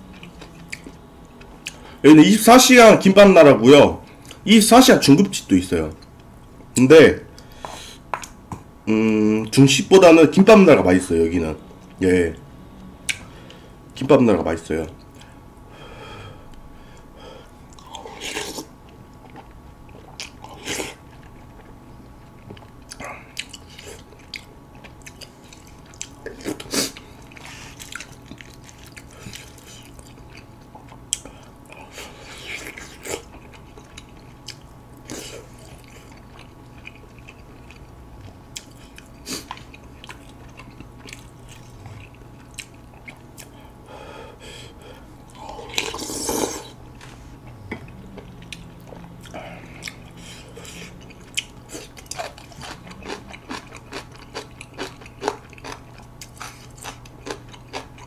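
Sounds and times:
person chewing noodles: 0:00.0 - 0:02.0, 0:16.4 - 0:58.0.

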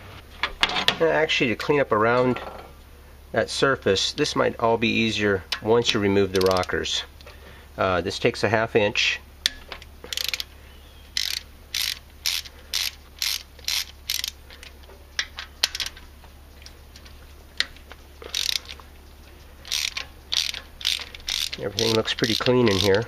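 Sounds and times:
ratcheting wrench clicking: 0:06.3 - 0:06.8, 0:09.4 - 0:10.5, 0:11.2 - 0:16.0, 0:17.0 - 0:18.8, 0:19.6 - 0:23.0.

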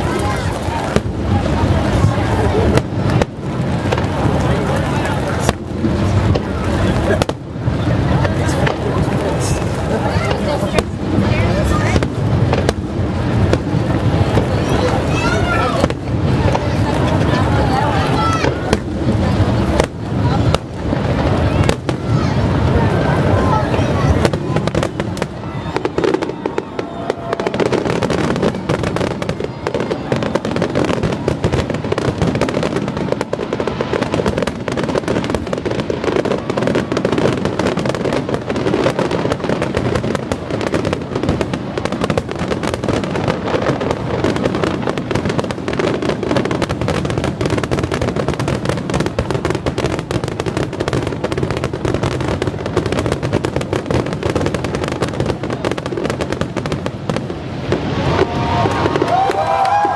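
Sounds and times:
fireworks bursting and crackling: 0:00.0 - 0:59.9.

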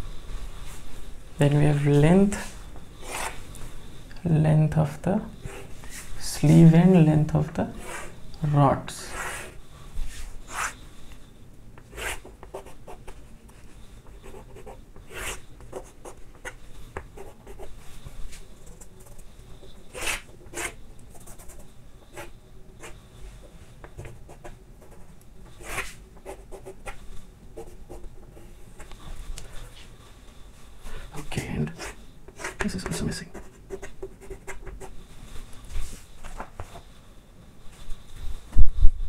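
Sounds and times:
chalk scraping on a chalkboard: 0:09.1 - 0:10.8, 0:19.9 - 0:23.0.

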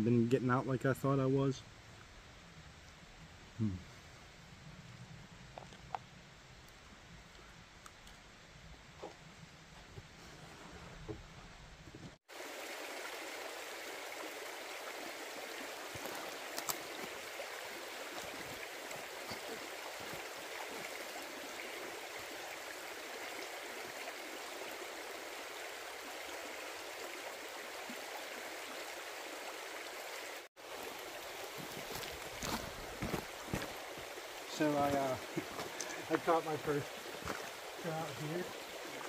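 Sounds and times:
creek burbling over stones: 0:12.2 - 0:39.0.

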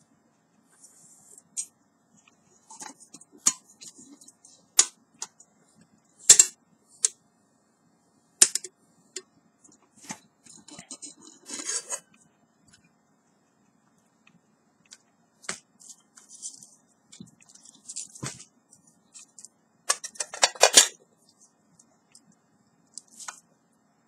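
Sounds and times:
metal rattling scrape: 0:10.5 - 0:12.1
metal pots clinking and clanking: 0:19.9 - 0:21.0.

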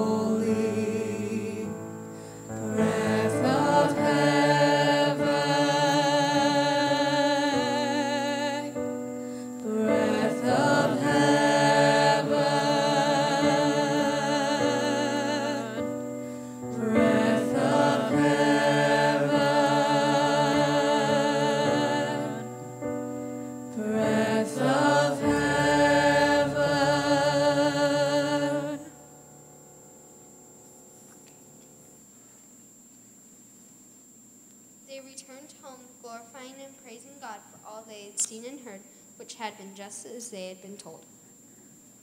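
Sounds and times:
choir singing long held chords: 0:00.0 - 0:29.7.

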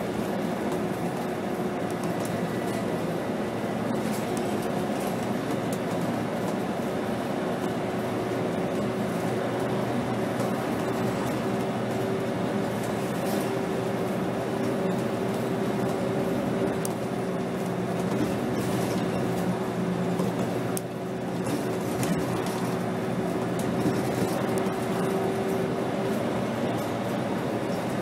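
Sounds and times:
bus diesel engine whine: 0:00.0 - 0:28.0
body rattles and clicks: 0:20.1 - 0:25.2.

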